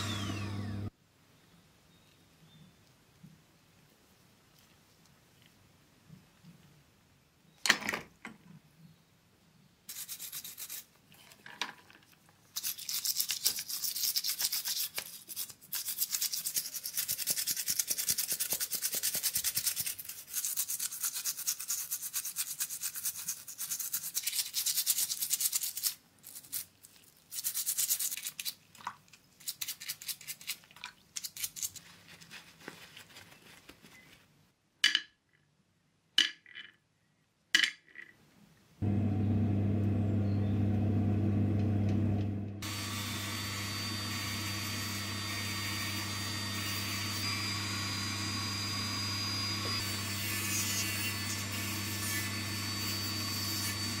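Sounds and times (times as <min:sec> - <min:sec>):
toothbrush scrubbing in liquid: 0:12.5 - 0:32.3.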